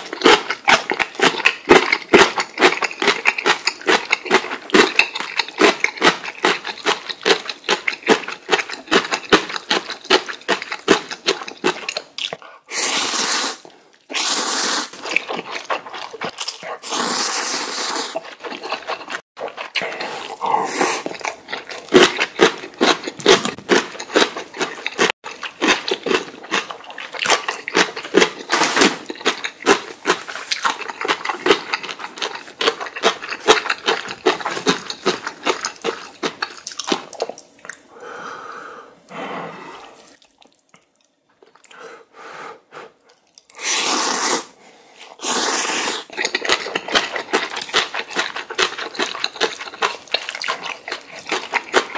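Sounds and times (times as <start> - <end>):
wet chewing and mouth smacks: 0.0 - 12.7, 13.7 - 37.9, 39.8 - 41.8, 43.0 - 43.6, 46.0 - 51.9
noodle slurps: 10.6 - 22.2, 43.5 - 51.9.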